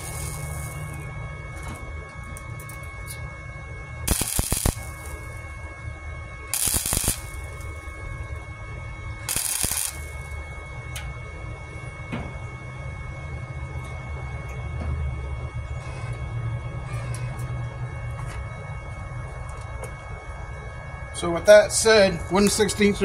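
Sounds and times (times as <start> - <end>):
crackling weld bursts: 0.0 - 1.1, 4.0 - 5.5, 6.5 - 8.4, 9.3 - 10.6
welder steady hum: 0.0 - 23.0.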